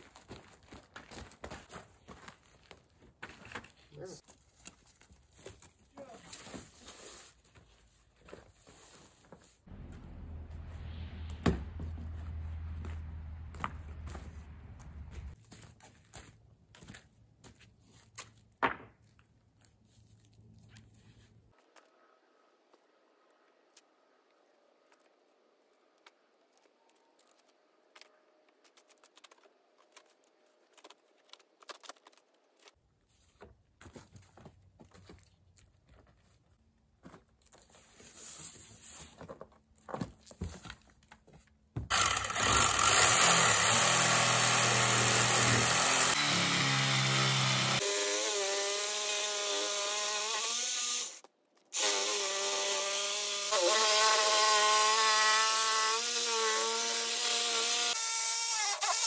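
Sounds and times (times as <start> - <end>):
power saw cutting plywood: 41.8 - 59.0.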